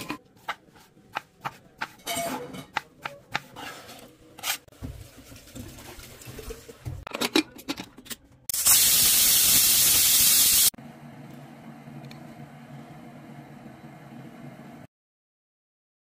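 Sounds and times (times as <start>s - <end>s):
pressure cooker steam hissing: 8.6s - 10.7s.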